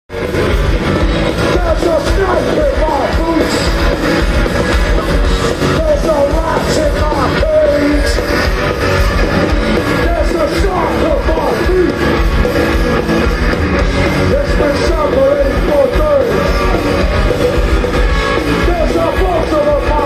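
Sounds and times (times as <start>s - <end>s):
live rock band playing: 0.1s - 20.0s
vocals: 1.3s - 4.2s, 5.5s - 8.6s, 9.6s - 12.2s, 14.1s - 16.9s, 18.4s - 20.0s.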